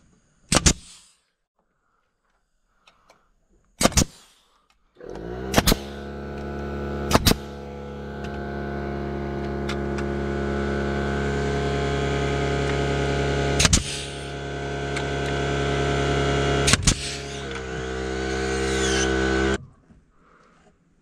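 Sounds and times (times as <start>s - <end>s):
nail gun firing: 0.5s - 1.0s, 3.8s - 4.4s, 5.0s - 8.5s, 13.6s - 19.6s
steady machine hum: 5.0s - 19.6s.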